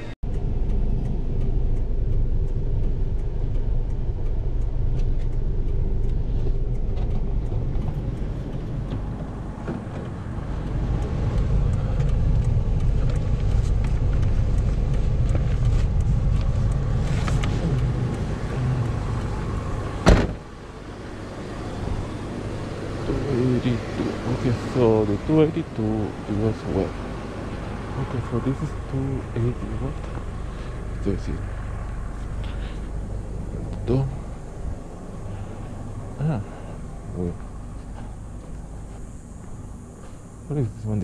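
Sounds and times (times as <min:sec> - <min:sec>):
car road and engine rumble: 0:00.0 - 0:41.0
sharp thump: 0:20.0 - 0:20.4.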